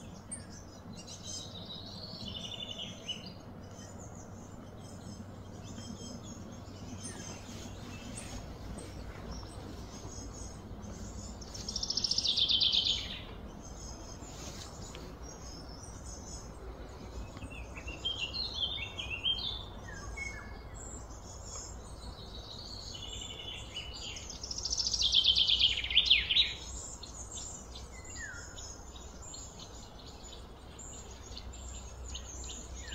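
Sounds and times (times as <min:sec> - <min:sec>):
birds singing and calling: 0:00.0 - 0:32.9
low background rumble: 0:00.0 - 0:32.9.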